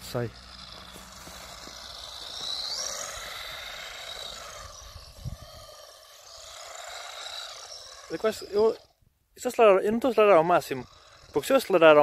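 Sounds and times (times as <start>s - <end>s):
wheels slipping on snow: 0.0s - 8.8s
electric motor whining: 0.0s - 9.0s, 10.2s - 12.0s.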